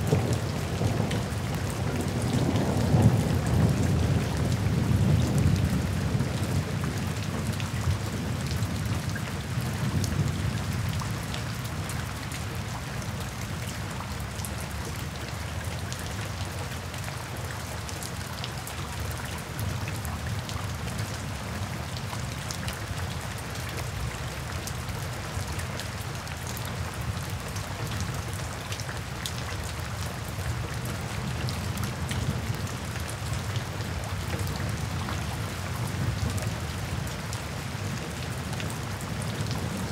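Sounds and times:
heavy rain: 0.0 - 39.9
rumble of thunder: 0.1 - 9.0.

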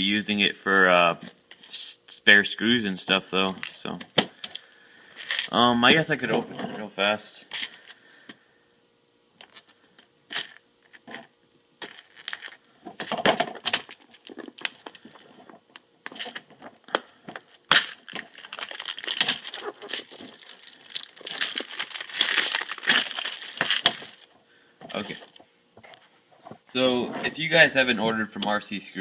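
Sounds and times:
plastic crinkling and tearing: 5.2 - 5.6, 9.4 - 25.4.

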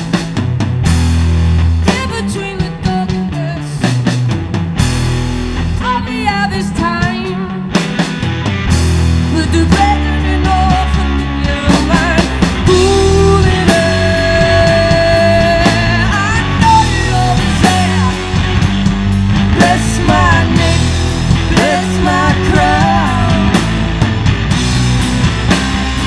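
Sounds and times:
bass guitar: 0.0 - 26.0
drum kit: 0.0 - 26.0
electric guitars: 0.0 - 26.0.

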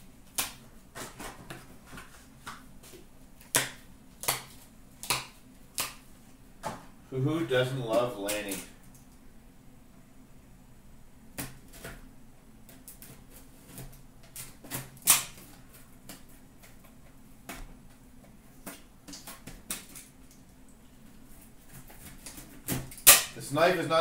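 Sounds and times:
sharp snap: 22.9 - 23.4.

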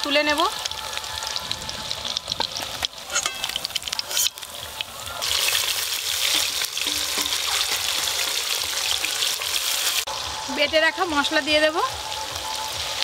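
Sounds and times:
vegetables sizzling in hot oil: 0.0 - 13.0
utensils clinking: 3.1 - 4.3
metal spatula stirring in wok: 6.0 - 8.4.

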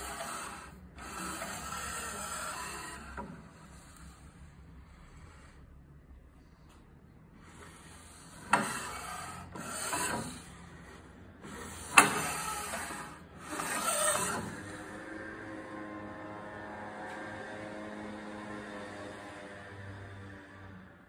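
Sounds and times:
metal rubbing on metal: 0.0 - 5.7, 7.4 - 14.8.

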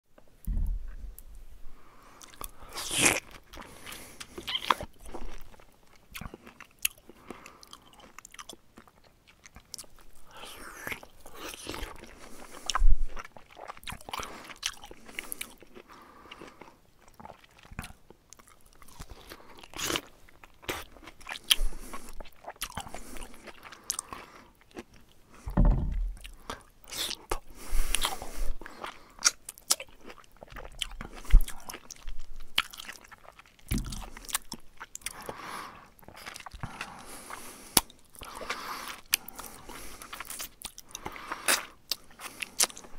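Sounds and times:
bear chewing food: 0.4 - 42.9.

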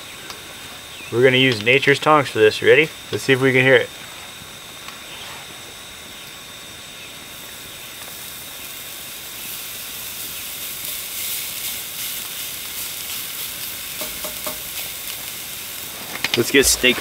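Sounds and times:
steak sizzling on a grill: 6.1 - 17.0.

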